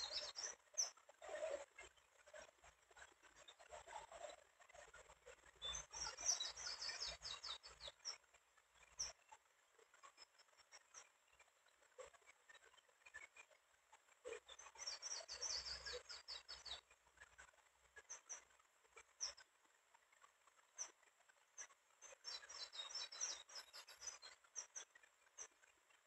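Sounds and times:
bird chirping: 0:00.0 - 0:01.6, 0:02.2 - 0:08.2, 0:08.8 - 0:09.3, 0:14.3 - 0:19.5, 0:20.6 - 0:25.5.

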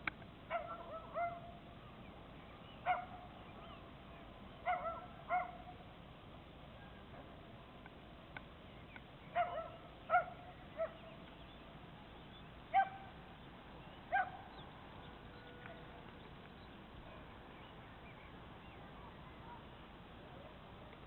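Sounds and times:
faint background hiss: 0:00.0 - 0:21.0
dog barking: 0:00.5 - 0:01.5, 0:02.8 - 0:03.2, 0:04.6 - 0:05.6, 0:09.4 - 0:11.1, 0:12.7 - 0:13.1, 0:14.1 - 0:14.4.

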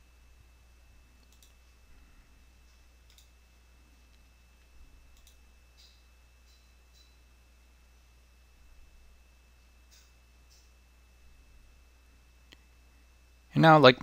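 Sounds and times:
low electrical hum: 0:00.0 - 0:14.0
computer mouse clicks: 0:01.2 - 0:01.6, 0:03.0 - 0:03.4, 0:05.1 - 0:07.2.

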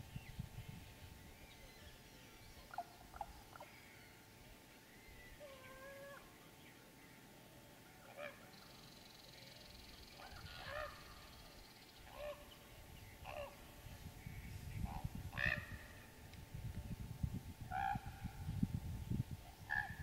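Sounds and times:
raven calling: 0:05.4 - 0:06.4, 0:10.2 - 0:12.6, 0:13.2 - 0:13.7, 0:14.9 - 0:16.1, 0:17.7 - 0:18.5, 0:19.7 - 0:20.0.

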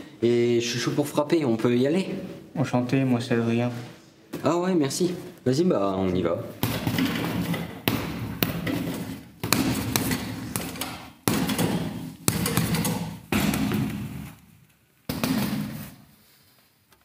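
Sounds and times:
boxing glove punches thudding: 0:06.6 - 0:14.4, 0:15.1 - 0:16.0.

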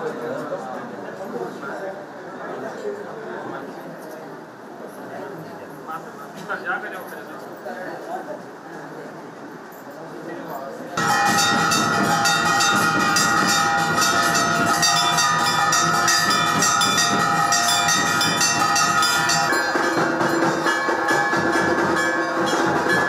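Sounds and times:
sustained bell ringing tones: 0:11.0 - 0:23.0
temple bells clanging rapidly: 0:11.0 - 0:23.0.

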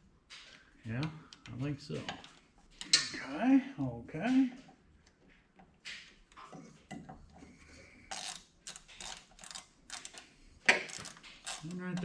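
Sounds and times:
metallic clicks of bolts and tools: 0:08.1 - 0:12.0.

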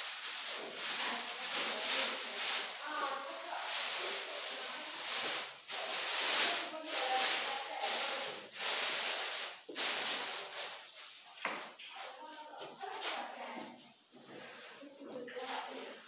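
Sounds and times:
sawdust scattering rustle: 0:00.0 - 0:10.9
plastic bags crackling: 0:00.0 - 0:12.2.

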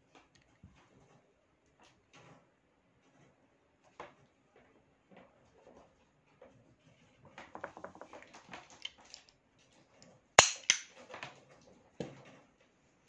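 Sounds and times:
sharp loud pistol clacks: 0:10.4 - 0:10.9
pistol mechanism clicks and rattles: 0:10.4 - 0:11.0.

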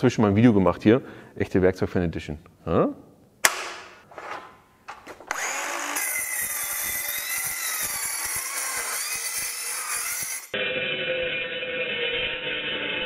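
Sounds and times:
metal circular saw whine: 0:05.3 - 0:13.0.

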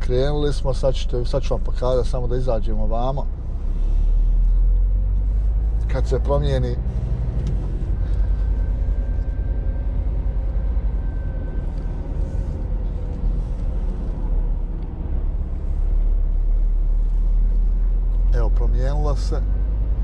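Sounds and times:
diesel engine rumble: 0:00.0 - 0:20.0
faint thin whine: 0:07.4 - 0:17.9.

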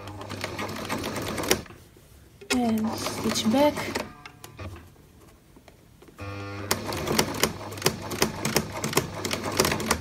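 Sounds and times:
sewing machine clacking: 0:00.0 - 0:01.7, 0:06.7 - 0:10.0
sewing machine motor hum: 0:06.2 - 0:10.0.

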